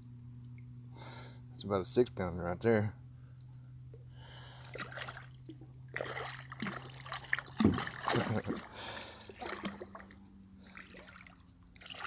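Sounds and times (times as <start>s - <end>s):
fish thrashing in water: 4.6s - 12.0s.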